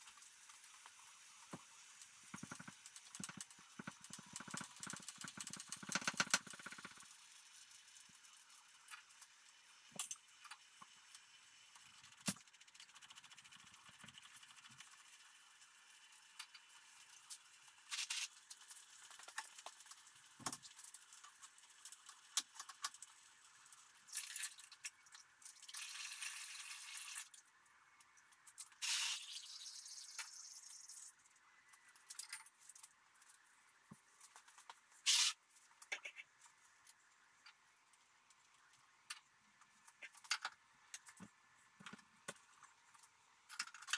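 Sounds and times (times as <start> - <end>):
short hiss: 28.8 - 29.4, 35.0 - 35.4.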